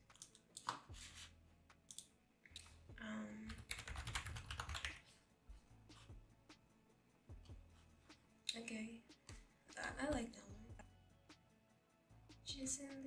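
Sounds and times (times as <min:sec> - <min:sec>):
computer keyboard typing: 0:03.5 - 0:05.0.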